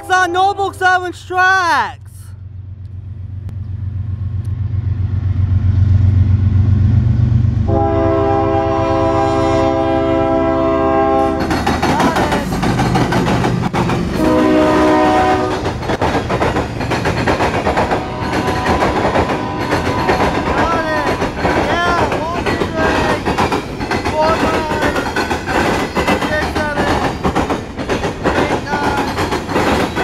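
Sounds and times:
locomotive air horn: 0.0s - 1.2s, 7.7s - 11.5s, 14.2s - 15.7s, 17.9s - 21.4s
diesel locomotive engine rumble: 0.0s - 30.0s
steel wheels clattering on rails: 11.3s - 30.0s.

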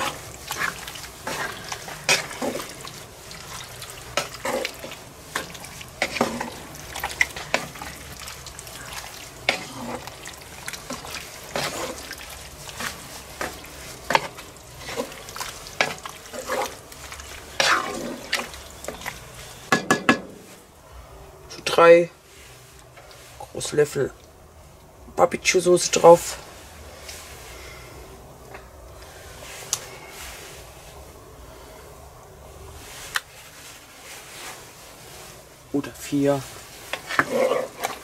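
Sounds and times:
stew simmering hiss: 0.0s - 19.8s
spatula scraping and knocking pot: 4.1s - 7.9s, 10.7s - 12.2s, 12.8s - 16.8s, 36.9s - 38.0s.

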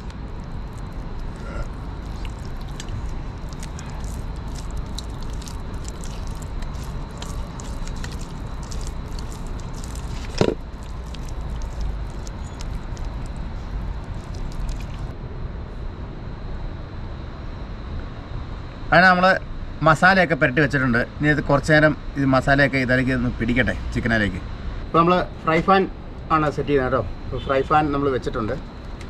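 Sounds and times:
hands squelching spice paste into chicken: 0.0s - 15.1s
low background rumble: 0.0s - 20.5s.

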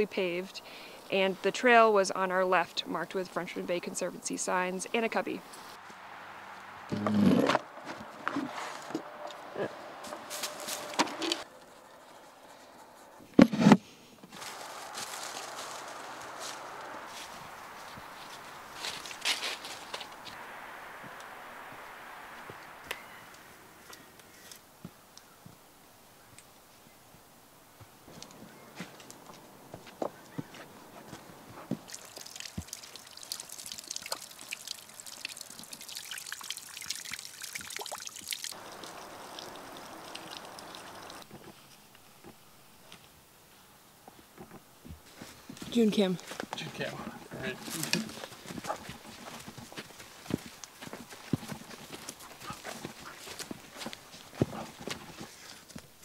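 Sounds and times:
footsteps through dry leaves: 10.0s - 11.5s, 14.3s - 20.5s
brook trickling over rocks: 14.4s - 21.4s, 31.6s - 41.3s.

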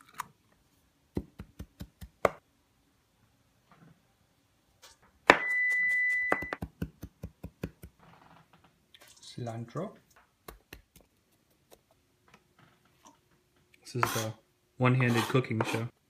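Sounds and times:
knife chopping on cutting board: 14.0s - 14.2s.

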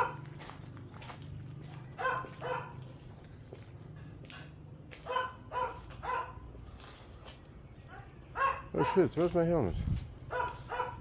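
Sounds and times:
dog barking: 0.0s - 0.2s, 1.9s - 2.8s, 5.0s - 6.5s, 7.8s - 9.3s, 10.2s - 11.0s.

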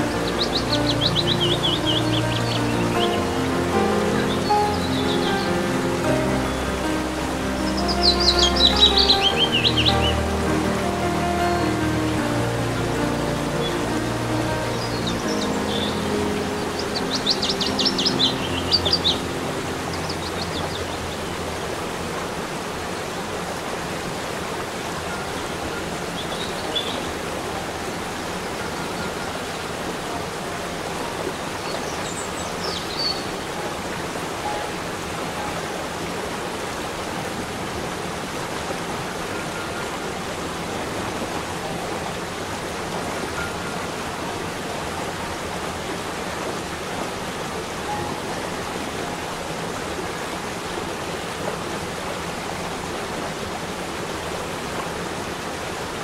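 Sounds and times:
waterfall rushing over rock: 0.0s - 56.0s
bird chirps: 0.2s - 3.3s, 7.7s - 10.2s.

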